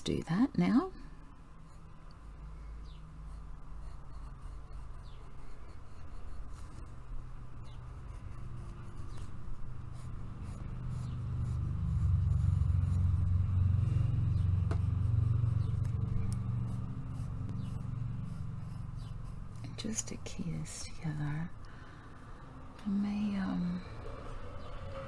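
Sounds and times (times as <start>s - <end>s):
pencil scratching on paper: 3.3s - 21.4s
low rumble: 9.8s - 19.6s.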